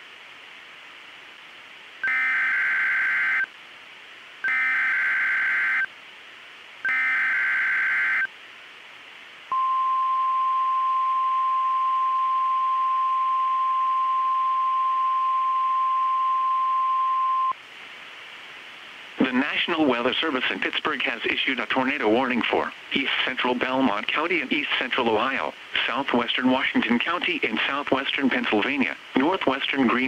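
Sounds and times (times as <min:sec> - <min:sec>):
faint radio hiss: 0:00.0 - 0:30.0
steady warning alarm tone: 0:02.0 - 0:03.5, 0:04.4 - 0:05.9, 0:06.8 - 0:08.3.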